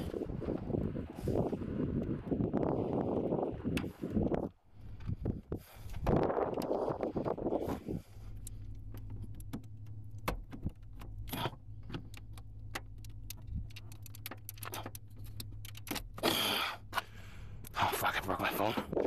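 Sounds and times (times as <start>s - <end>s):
steady low hum: 0.0s - 19.0s
light clicks and rattles: 5.8s - 19.0s.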